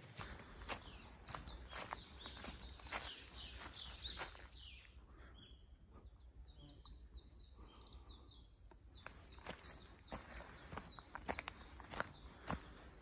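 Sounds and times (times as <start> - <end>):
footsteps on dry leaves: 0.0 - 4.7, 9.1 - 13.0
small bird singing: 0.0 - 13.0.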